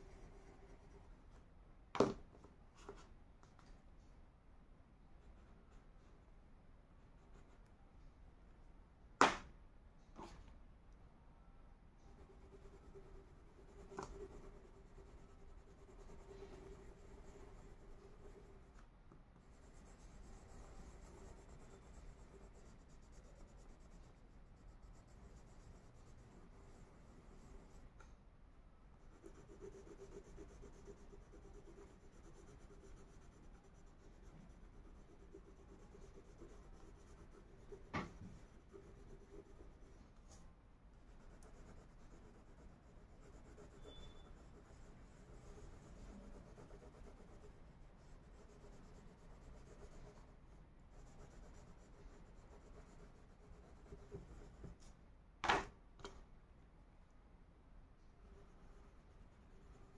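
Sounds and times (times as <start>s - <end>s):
crayon scratching on paper: 0.0s - 1.1s, 12.1s - 18.8s, 19.4s - 27.9s, 29.0s - 40.4s, 41.0s - 54.8s, 58.2s - 59.9s.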